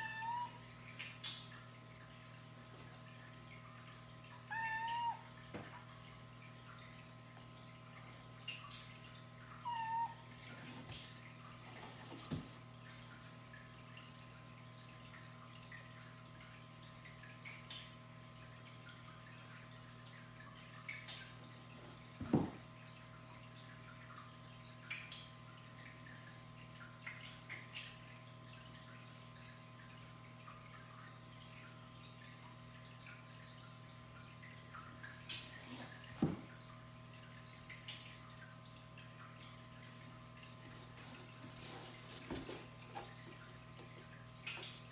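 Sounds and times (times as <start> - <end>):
cat meowing: 4.5 - 5.2, 9.7 - 10.2
faint light ticks: 37.6 - 38.1.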